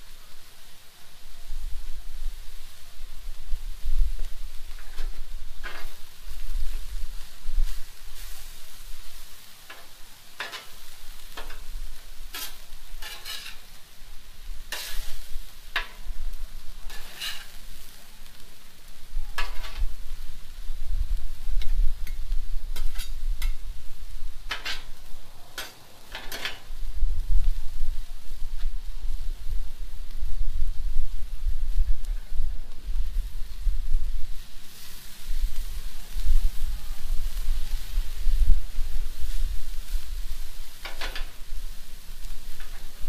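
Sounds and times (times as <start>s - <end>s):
food sizzling: 0.0s - 43.0s
metal spatula scraping griddle: 4.7s - 14.0s, 14.7s - 16.1s, 16.8s - 18.4s, 19.4s - 20.0s, 22.0s - 23.6s, 24.4s - 26.7s, 40.3s - 41.4s.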